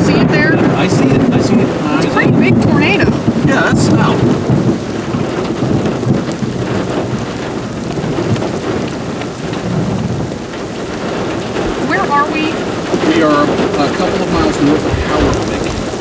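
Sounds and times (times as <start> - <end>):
heavy rain rushing: 0.0 - 16.0
low rumble: 11.2 - 16.0.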